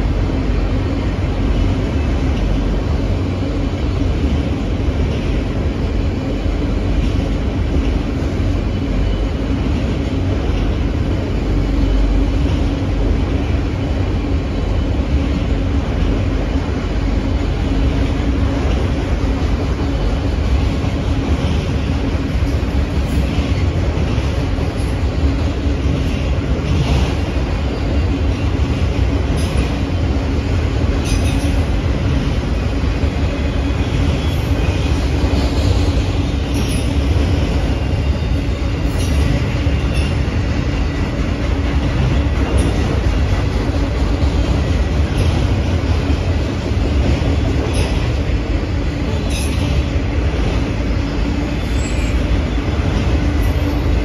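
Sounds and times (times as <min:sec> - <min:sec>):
steel train wheels rumbling on rails: 0:00.0 - 0:54.0.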